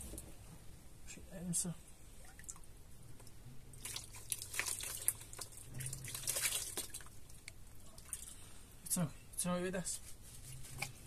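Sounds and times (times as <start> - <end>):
water splashing and dripping: 2.2 - 8.4.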